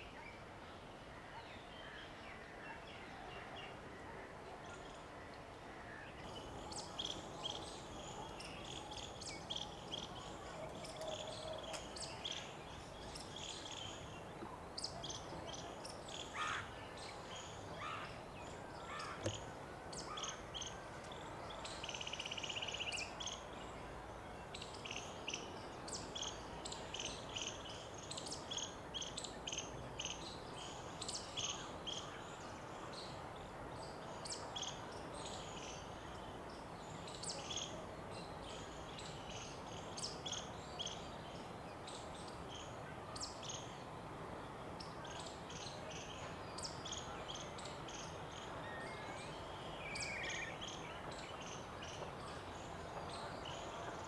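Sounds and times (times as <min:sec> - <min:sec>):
small birds chirping: 0:06.2 - 0:23.6.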